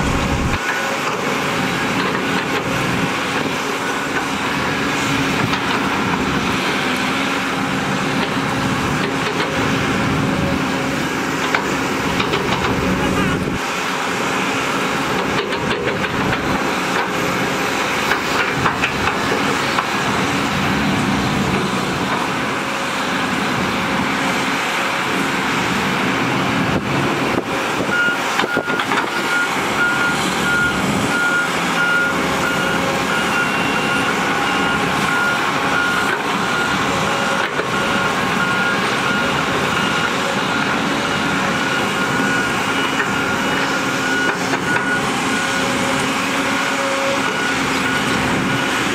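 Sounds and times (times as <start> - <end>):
reversing alarm beeping: 0.0 - 0.8, 27.8 - 48.9
dump truck tipping load: 0.0 - 22.7, 25.7 - 48.9
heavy diesel engines running: 0.0 - 48.9.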